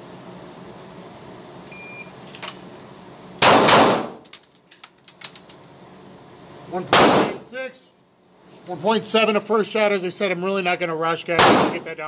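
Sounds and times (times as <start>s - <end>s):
timer start beep: 1.7s - 2.1s
loud pistol shot with echo: 3.4s - 4.2s, 6.9s - 7.4s, 11.4s - 11.8s.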